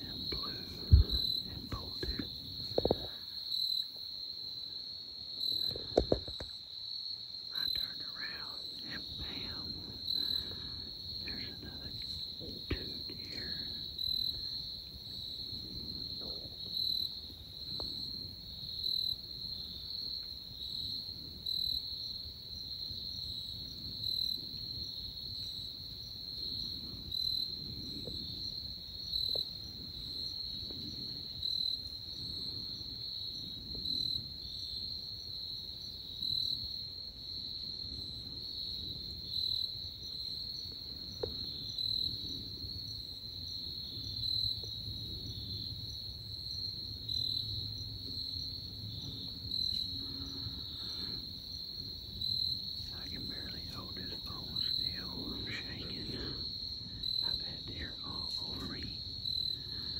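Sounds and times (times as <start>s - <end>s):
soft low rumble: 0.0s - 3.2s, 7.6s - 18.4s, 52.8s - 59.9s
insects trilling: 0.0s - 59.9s
loud insect chirp: 0.0s - 59.9s.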